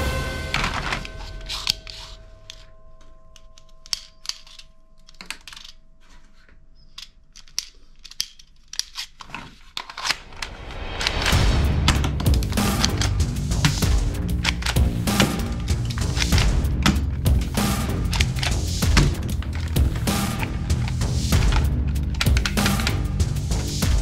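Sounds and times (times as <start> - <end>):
background music: 0.0 - 2.6, 10.3 - 24.0
plastic toys clicking and rattling: 0.6 - 2.7, 3.3 - 11.2, 11.8 - 24.0.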